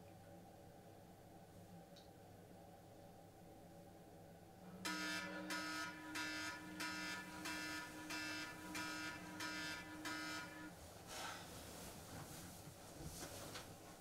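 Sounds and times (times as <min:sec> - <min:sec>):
phone alarm beeping: 0:04.9 - 0:10.7.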